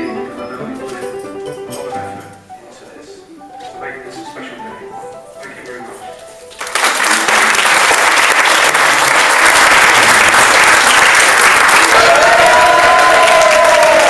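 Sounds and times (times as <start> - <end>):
crowd applauding: 6.5 - 14.0.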